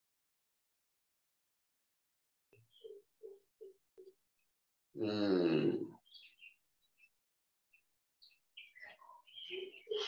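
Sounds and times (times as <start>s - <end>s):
small birds chirping: 2.6s - 4.6s, 5.6s - 10.0s.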